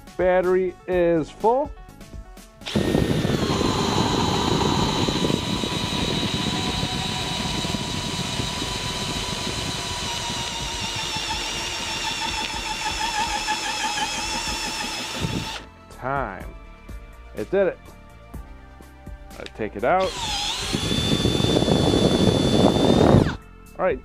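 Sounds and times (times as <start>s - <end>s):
cordless drill motor whining: 2.6s - 15.7s, 20.0s - 23.4s
drill bit chewing through wood: 2.6s - 15.7s, 20.0s - 23.4s.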